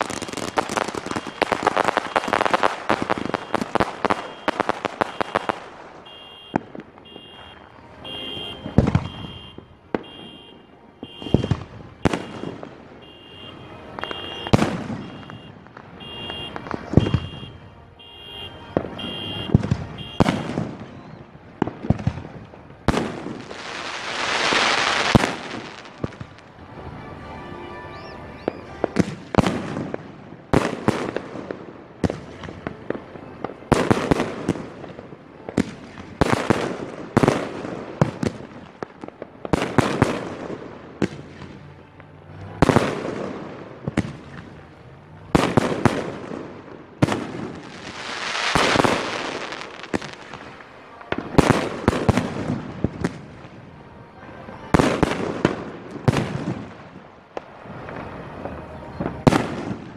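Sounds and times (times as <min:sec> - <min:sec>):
fireworks bursting: 0:00.0 - 0:59.9
fireworks hissing: 0:23.0 - 0:26.8, 0:47.2 - 0:50.7.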